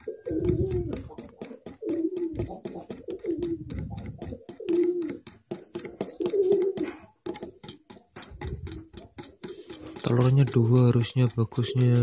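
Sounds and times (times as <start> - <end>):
dove cooing: 0.0 - 10.2, 11.5 - 12.0
spoon scraping plastic bowl: 0.3 - 12.0.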